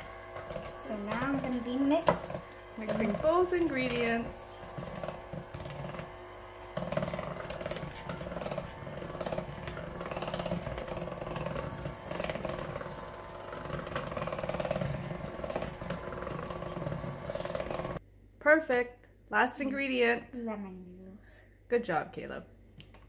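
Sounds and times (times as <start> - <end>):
electric mixer whirring: 0.0 - 18.0.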